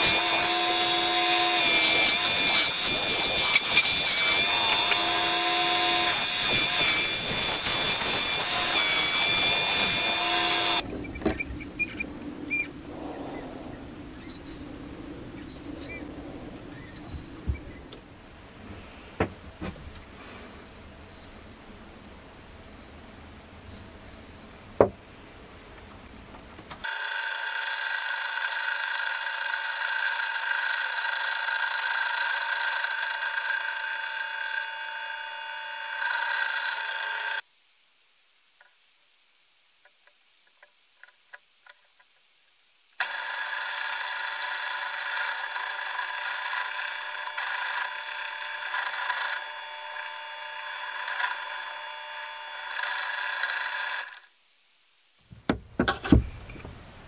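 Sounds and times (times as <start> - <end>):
drill press motor whining: 0.0 - 10.8, 26.8 - 37.4, 43.0 - 54.3.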